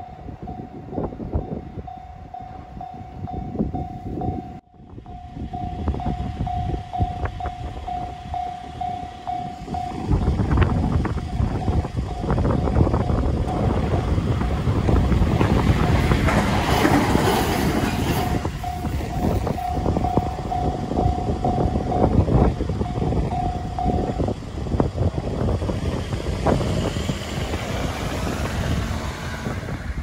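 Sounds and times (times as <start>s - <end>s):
train rumble and wheel clatter: 0.0s - 30.0s
level crossing bell ringing: 18.3s - 24.2s.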